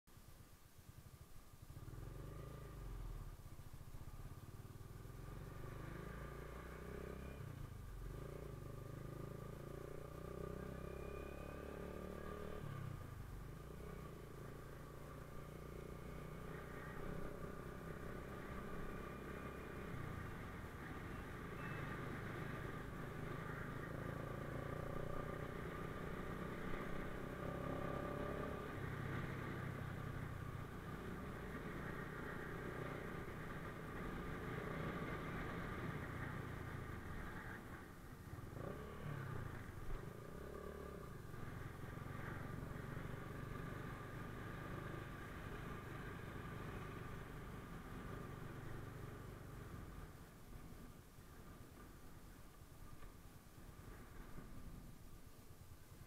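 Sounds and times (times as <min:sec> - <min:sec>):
motorcycle engine running: 0:00.8 - 0:52.2.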